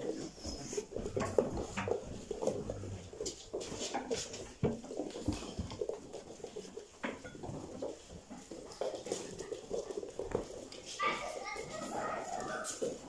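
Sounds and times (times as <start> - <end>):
puppy paws clicking on wooden floor: 0.0 - 13.0.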